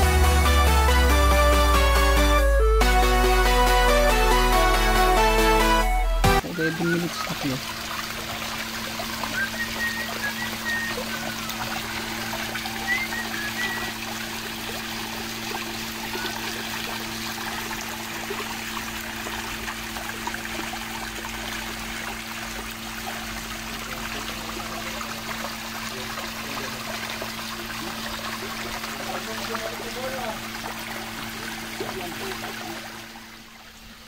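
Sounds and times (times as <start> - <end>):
water trickling and splashing: 6.4 - 34.0
short high chirps: 9.3 - 14.0.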